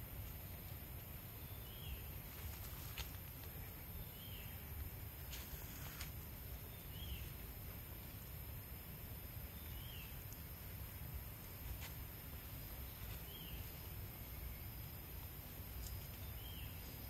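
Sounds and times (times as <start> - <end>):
steady high hiss: 0.0 - 17.0
bird chirping: 1.4 - 2.2, 3.6 - 4.7, 6.6 - 7.4, 9.5 - 10.5, 12.6 - 15.1, 15.8 - 17.0.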